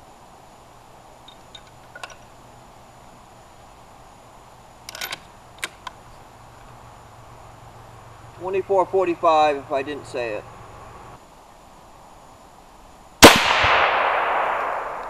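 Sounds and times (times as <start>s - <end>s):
faint steady hum: 0.0s - 15.0s
cartridges being handled: 1.3s - 2.3s, 4.9s - 6.0s.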